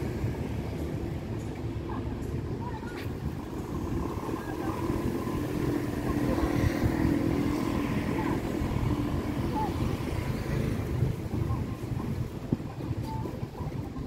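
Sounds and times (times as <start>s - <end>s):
street traffic rumble: 0.0s - 14.0s
passing vehicle engine hum: 3.1s - 12.4s.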